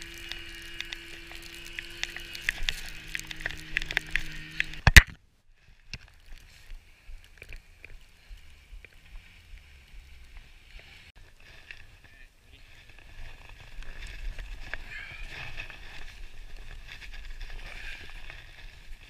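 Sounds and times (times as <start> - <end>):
skis hissing over snow: 0.0 - 4.5, 12.5 - 19.0
snowmobile engine humming: 0.0 - 4.9, 6.8 - 11.2
small rustles: 0.0 - 19.0.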